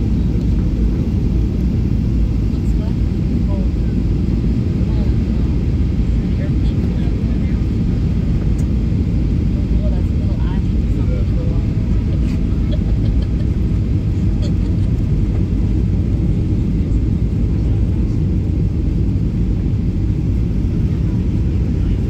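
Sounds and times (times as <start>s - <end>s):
jet engine rumble: 0.0s - 22.0s.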